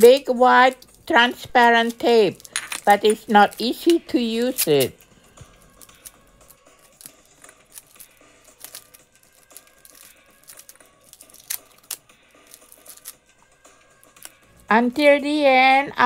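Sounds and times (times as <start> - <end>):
packing tape clicks and rustles: 0.6 - 1.2, 1.8 - 5.0, 5.6 - 13.2, 14.0 - 14.4.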